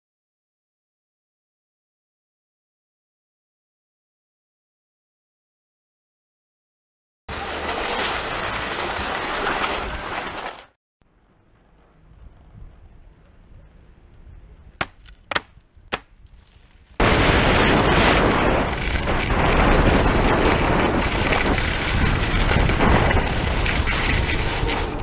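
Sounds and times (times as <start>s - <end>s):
skis rushing over snow: 7.3s - 10.8s, 16.2s - 25.0s
wind on microphone: 12.0s - 14.8s, 15.4s - 25.0s.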